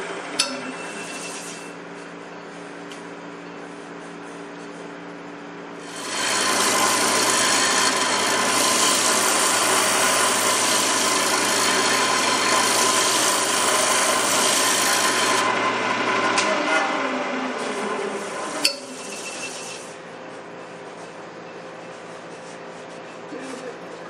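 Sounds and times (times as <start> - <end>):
gouge scraping spinning wood: 0.8 - 1.8, 5.8 - 20.0
lathe motor hum: 5.8 - 19.9.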